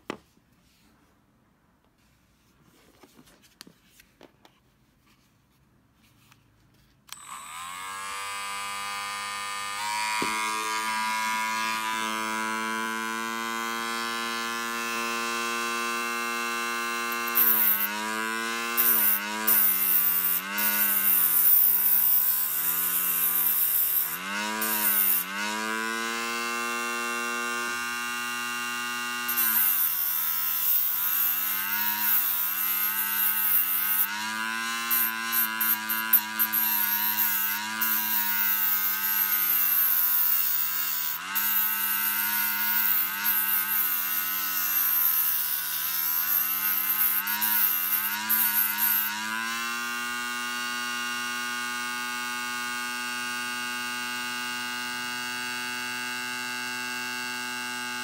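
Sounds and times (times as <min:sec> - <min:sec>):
rotary tool high whine: 0:07.1 - 0:50.2
disc grinding steel needle: 0:16.9 - 0:25.6, 0:29.2 - 0:49.3.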